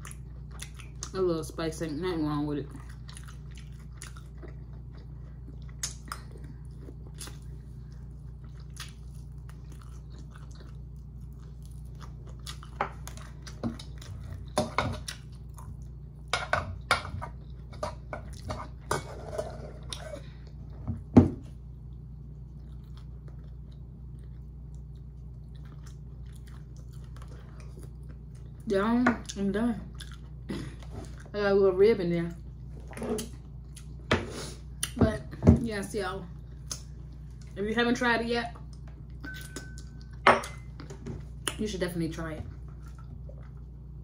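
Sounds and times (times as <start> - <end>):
chewing and mouth clicks: 0.0 - 1.2, 2.7 - 16.3, 21.8 - 30.4, 32.8 - 34.0
steady low hum: 0.0 - 44.0.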